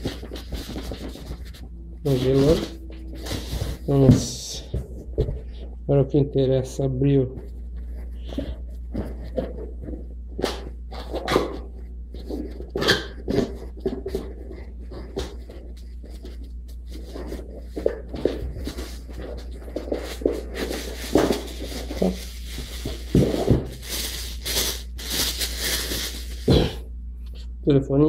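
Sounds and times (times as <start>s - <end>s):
plastic wrapping crinkling: 0.0s - 5.7s, 7.4s - 26.8s
cardboard box knocks and scrapes: 22.8s - 23.7s.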